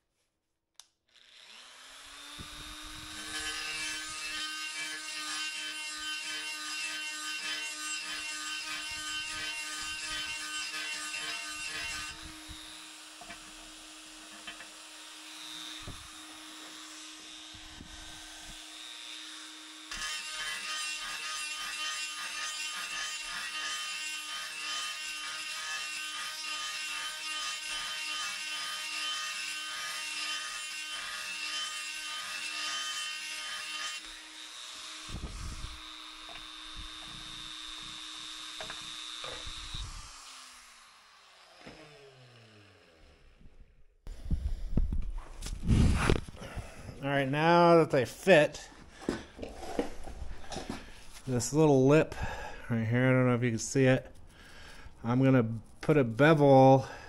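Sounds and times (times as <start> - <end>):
die grinder grinding steel: 1.1 - 43.8.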